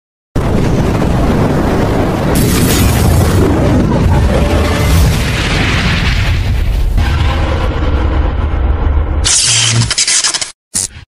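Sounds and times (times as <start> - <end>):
deep low rumble: 0.4 - 9.3.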